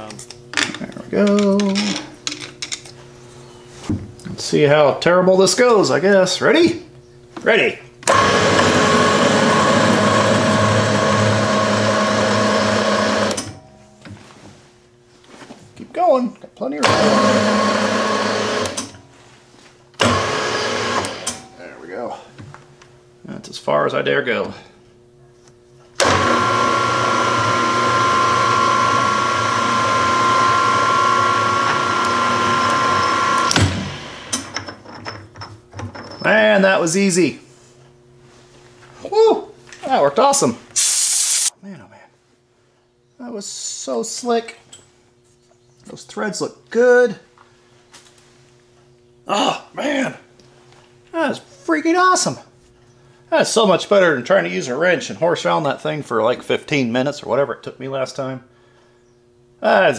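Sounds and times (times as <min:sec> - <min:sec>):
milling machine motor whirring: 0:08.0 - 0:13.5, 0:16.8 - 0:19.0, 0:20.0 - 0:21.4, 0:26.0 - 0:34.5.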